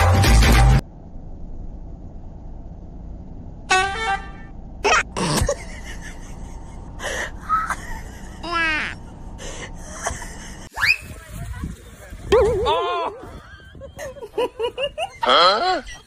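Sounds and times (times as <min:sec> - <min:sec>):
loud music: 0:00.0 - 0:00.8.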